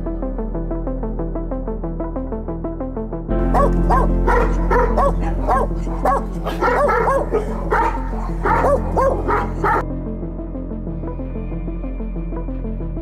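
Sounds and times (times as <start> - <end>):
background music: 0.0 - 13.0
dog barking rapidly: 3.4 - 9.8.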